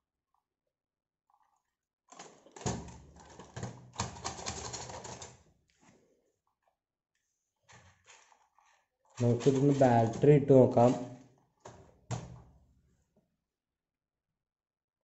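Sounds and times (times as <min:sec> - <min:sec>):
plastic toy truck clattering: 0:02.1 - 0:05.4, 0:07.7 - 0:12.4.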